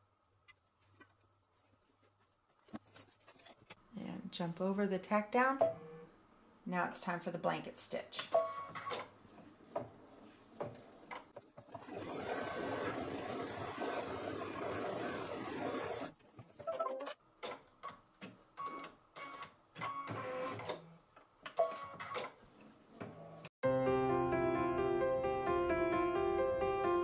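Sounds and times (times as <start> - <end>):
embroidery machine stitching: 11.6 - 16.1.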